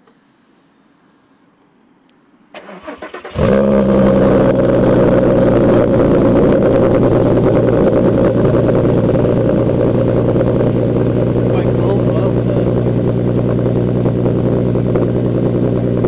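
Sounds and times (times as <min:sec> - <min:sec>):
engine starter cranking: 0:02.5 - 0:03.7
car engine idling loudly: 0:03.4 - 0:16.0.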